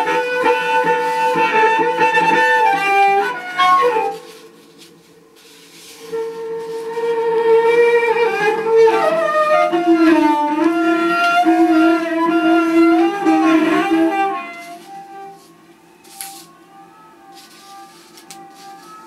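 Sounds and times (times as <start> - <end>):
bowed cello long notes: 0.0 - 4.3, 6.0 - 15.5.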